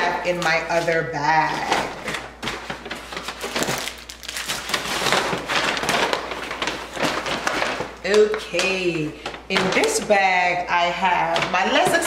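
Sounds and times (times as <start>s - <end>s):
paper bag rustling and crinkling: 0.0s - 12.0s.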